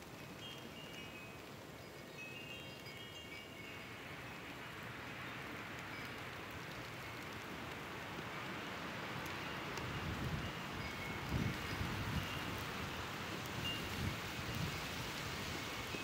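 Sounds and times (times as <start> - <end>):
snowstorm hiss: 0.0 - 16.0
wind rumbling on microphone: 0.1 - 16.0
wind chime tinkling: 0.2 - 4.0.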